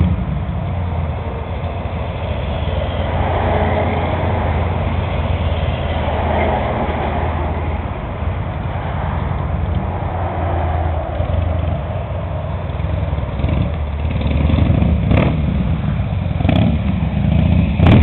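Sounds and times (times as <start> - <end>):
motorcycle engine idling: 11.3 - 17.8.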